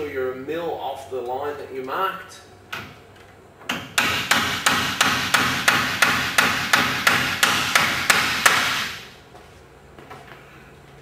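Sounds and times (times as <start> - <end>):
hammer driving a nail into wood: 3.7 - 9.0.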